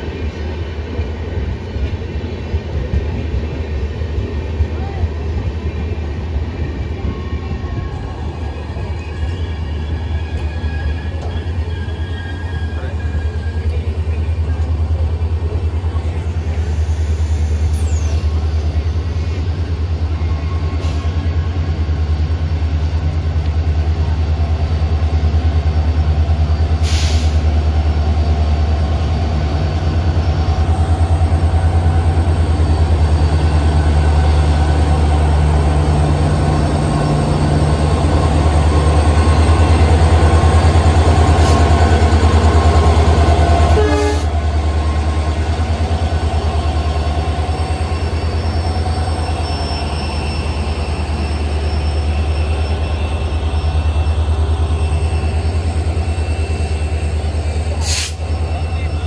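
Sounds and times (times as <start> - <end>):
air hiss: 26.8 - 27.5, 57.8 - 58.2.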